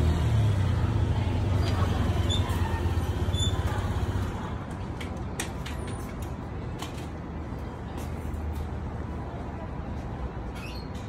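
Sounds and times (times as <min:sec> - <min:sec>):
vehicle engine rumble: 0:00.0 - 0:11.0
short high squeaks: 0:02.2 - 0:03.7, 0:10.5 - 0:11.0.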